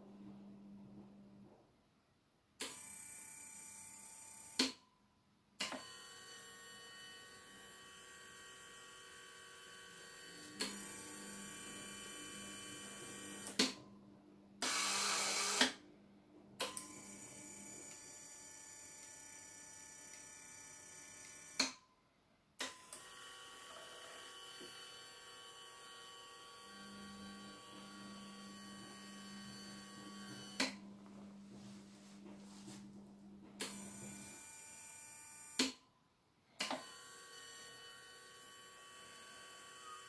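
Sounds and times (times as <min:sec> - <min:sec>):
small electric motors whining: 0:05.8 - 0:13.6, 0:22.7 - 0:30.8, 0:36.7 - 0:40.0.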